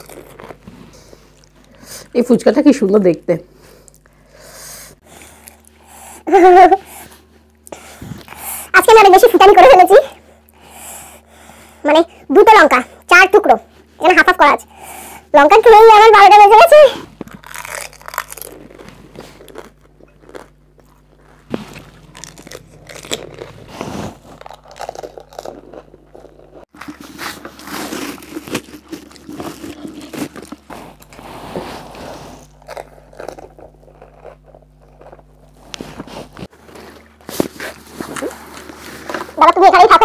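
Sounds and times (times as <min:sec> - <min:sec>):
person chewing crunchy food: 0:00.0 - 0:02.1, 0:05.0 - 0:06.0, 0:17.0 - 0:39.4.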